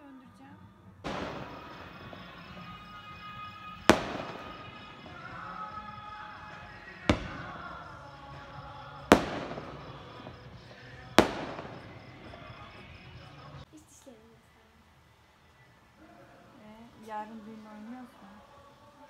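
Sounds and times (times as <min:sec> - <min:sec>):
faint music: 0:00.0 - 0:19.0
fireworks bursting with echo: 0:01.0 - 0:13.7.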